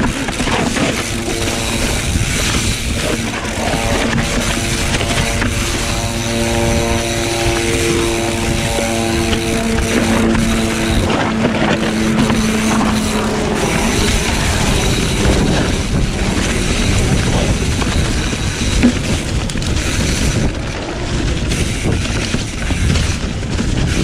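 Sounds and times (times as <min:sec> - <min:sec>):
bike tyres over dry leaves: 0:00.0 - 0:24.0
steady humming tone: 0:00.0 - 0:24.0
wind on microphone: 0:00.0 - 0:24.0
bike knocking: 0:07.3 - 0:24.0.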